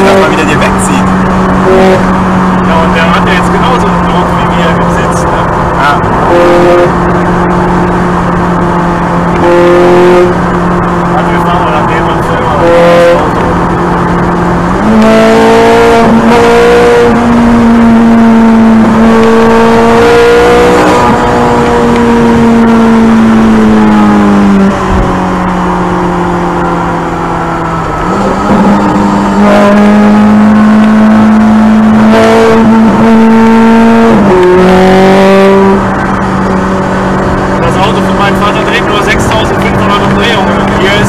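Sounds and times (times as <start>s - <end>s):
car engine running hard: 0.0s - 41.0s.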